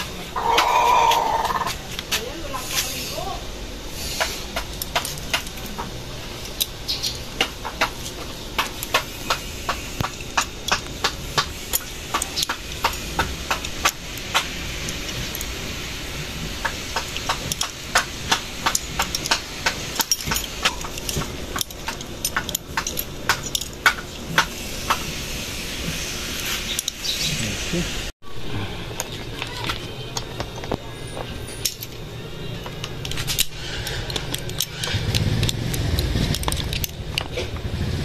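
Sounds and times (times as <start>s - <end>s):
steady background hiss: 0.0s - 38.0s
hand tools knocking on bicycle parts: 4.1s - 6.0s, 6.6s - 15.1s, 16.6s - 25.1s.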